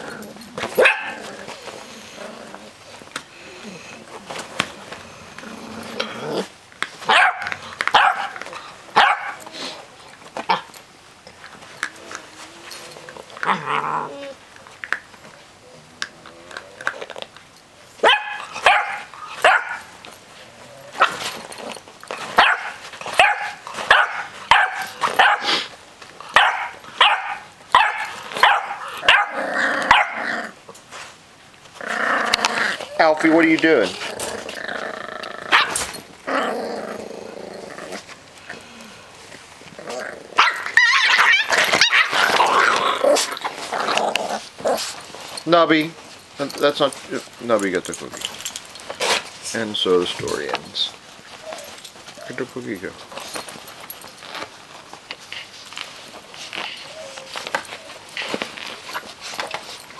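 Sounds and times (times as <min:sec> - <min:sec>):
puppies barking and yipping: 0:00.0 - 0:02.2, 0:07.0 - 0:09.7, 0:18.0 - 0:20.0, 0:20.9 - 0:30.2, 0:35.5 - 0:36.2, 0:40.4 - 0:46.2.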